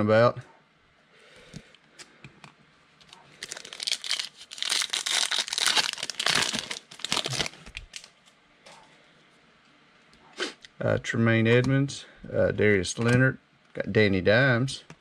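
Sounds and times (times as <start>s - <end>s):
foil pack tearing and crinkling: 3.4s - 8.1s.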